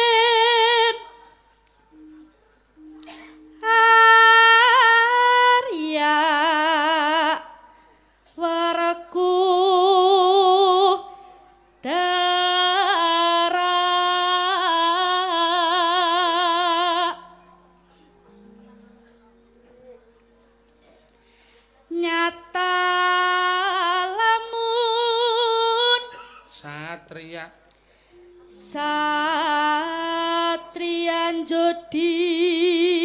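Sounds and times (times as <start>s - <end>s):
woman singing with vibrato: 0.0s - 2.2s, 3.0s - 7.8s, 8.4s - 17.8s, 21.8s - 26.4s, 28.2s - 33.0s.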